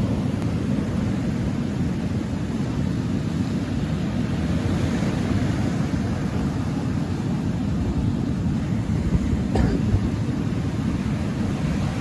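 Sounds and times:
surf on pebble beach: 0.0s - 12.0s
wind buffeting microphone: 0.0s - 12.0s.

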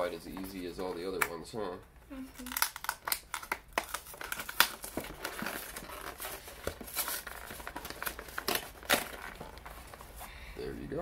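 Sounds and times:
packaging crinkling and tearing: 2.3s - 10.2s.

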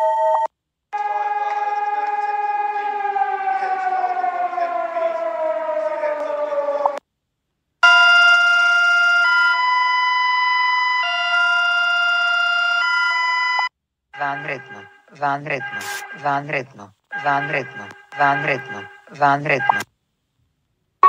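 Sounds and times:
siren sliding down in pitch: 1.0s - 7.0s, 7.8s - 13.7s
electronic alarm tones: 7.8s - 9.9s, 10.9s - 13.7s.

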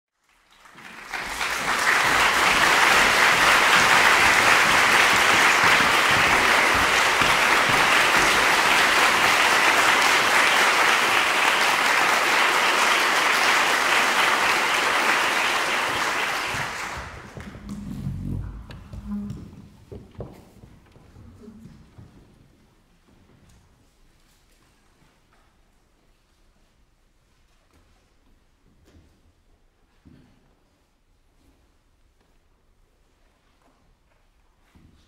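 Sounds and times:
audience applauding: 0.2s - 19.4s.

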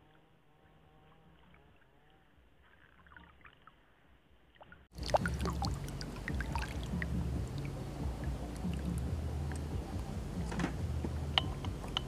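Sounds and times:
faint lake ambience: 0.0s - 12.0s
small clicks and drips: 1.0s - 9.7s
water splashing and lapping: 1.0s - 12.0s
low rumble: 5.0s - 12.0s.

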